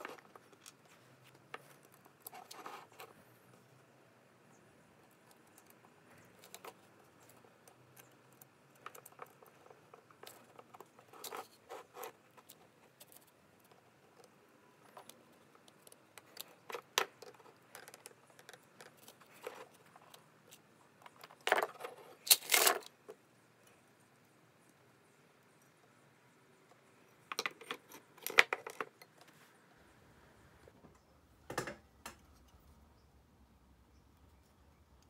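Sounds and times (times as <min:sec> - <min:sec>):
metal latch and screws clinking: 0:27.1 - 0:29.2.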